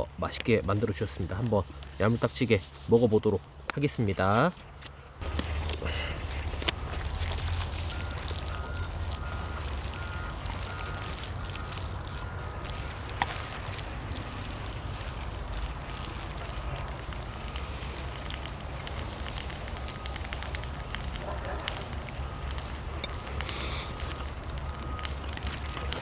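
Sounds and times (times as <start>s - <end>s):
meat sizzling on hot metal: 5.2s - 26.0s.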